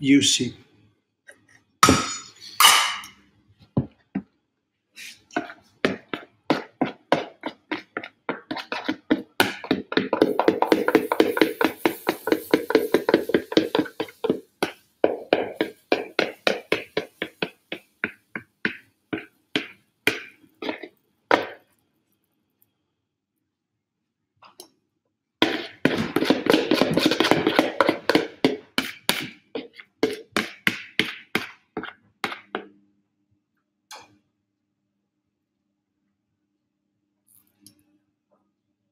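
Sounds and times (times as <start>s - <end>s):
spatula knocking against plastic bowl: 5.9s - 21.6s, 25.4s - 32.7s
hiss: 10.8s - 14.3s.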